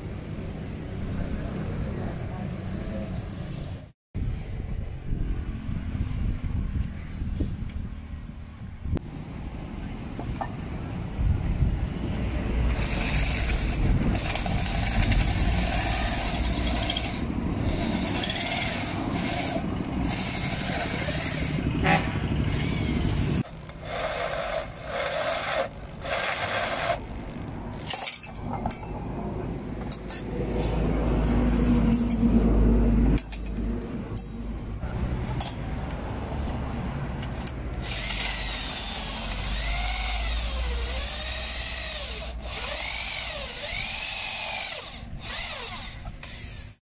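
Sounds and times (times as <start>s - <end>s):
electric drill boring through steel: 12.8s - 21.6s, 37.8s - 46.8s.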